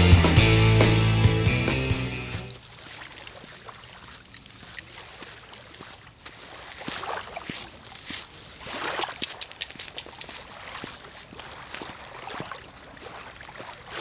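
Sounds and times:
footsteps crunching on frozen gravel: 2.5s - 13.2s.

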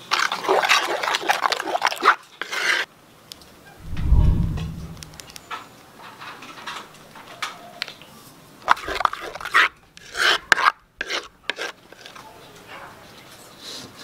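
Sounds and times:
metal spoon scraping batter bowl: 2.3s - 2.9s, 8.7s - 12.2s.

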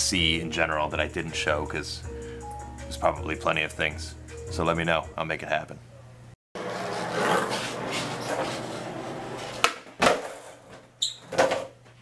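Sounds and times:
skateboard wheels rolling: 6.6s - 11.5s
brief high squeak: 11.0s - 11.3s.

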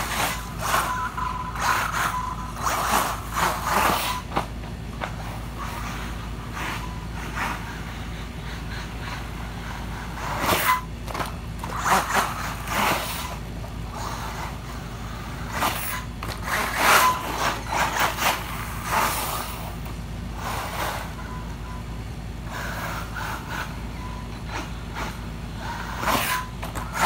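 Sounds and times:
toy truck motor whining: 0.0s - 27.0s.

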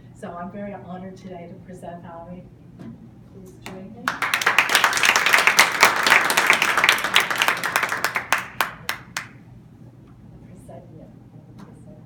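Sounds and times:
audience applauding: 4.1s - 9.4s.

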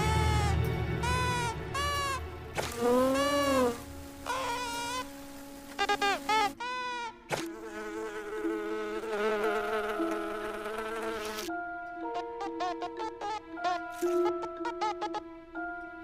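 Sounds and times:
cartoon wing buzz: 0.0s - 11.5s.

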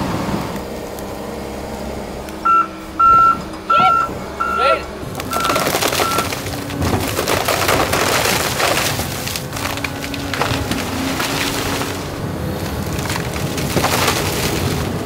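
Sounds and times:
diesel engine running: 0.0s - 15.0s
short beeps: 2.4s - 6.3s
branches snapping: 5.1s - 15.0s
wood cracking and splintering: 5.1s - 15.0s.

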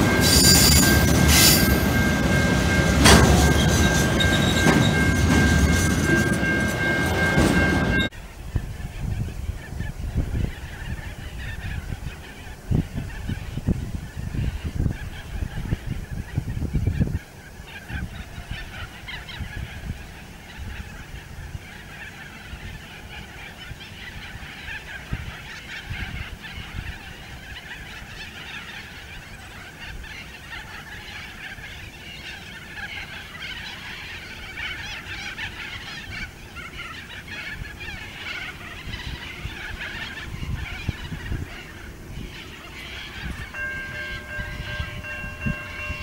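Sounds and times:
wind on microphone: 5.2s - 21.7s, 37.4s - 46.0s
birds squawking: 9.6s - 46.0s.

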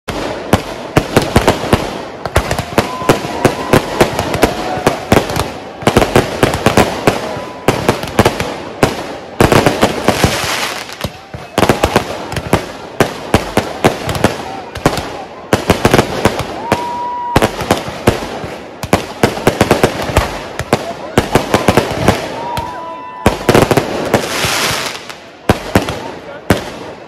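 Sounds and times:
fireworks bursting: 0.1s - 27.0s
fireworks hiss: 8.4s - 11.0s, 23.7s - 25.2s.

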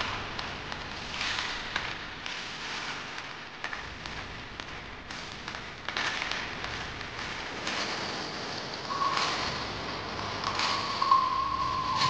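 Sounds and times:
small clicks and crackles: 0.0s - 12.0s
steady hissing noise: 8.4s - 12.0s.

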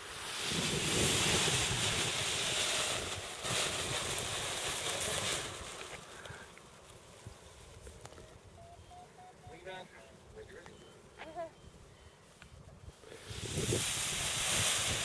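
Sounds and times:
wind buffeting microphone: 12.5s - 15.0s.

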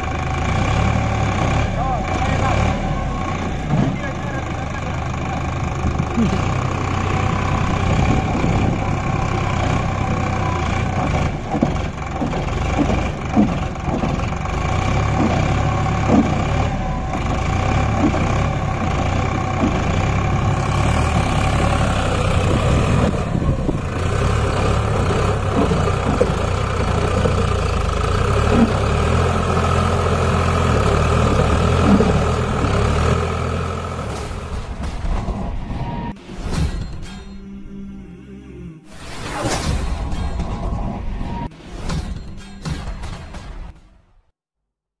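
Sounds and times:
diesel engine running: 0.0s - 35.8s.

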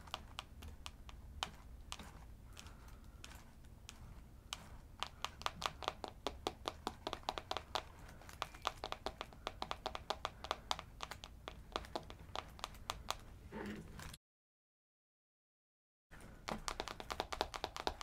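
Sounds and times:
fingernails tapping on camera: 3.9s - 13.2s, 16.4s - 18.0s.

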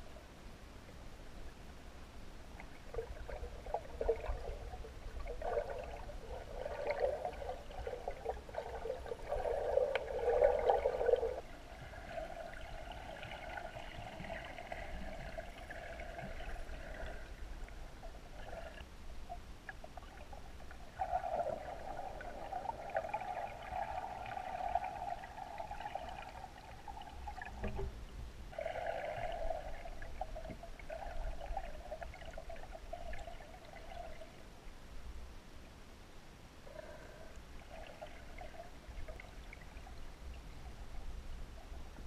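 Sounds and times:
muffled underwater bubbling: 2.6s - 27.8s.

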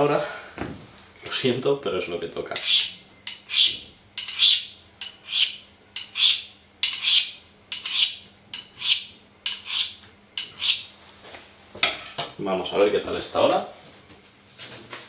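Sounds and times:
knife scraping on sharpening steel: 2.6s - 10.9s.

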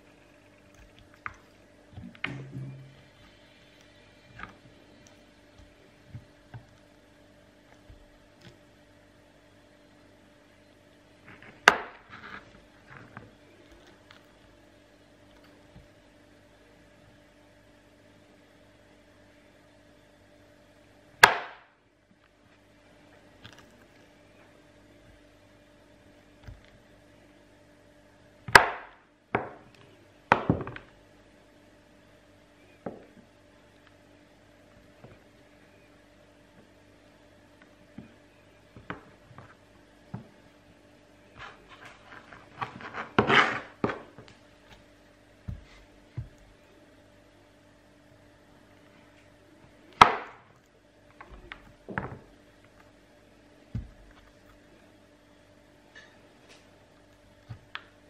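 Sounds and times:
knife cutting soap: 41.3s - 46.6s.

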